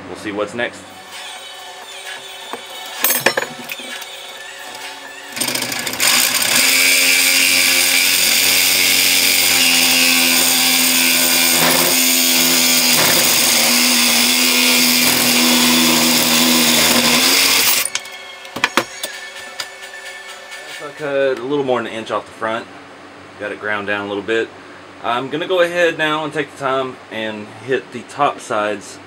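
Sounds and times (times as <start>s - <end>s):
reciprocating saw cutting metal: 5.3s - 18.2s.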